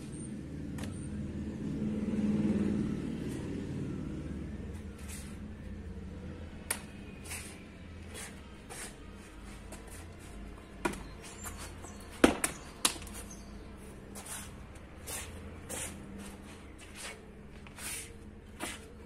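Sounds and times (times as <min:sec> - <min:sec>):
martial arts strikes and slaps: 0:12.2 - 0:13.2.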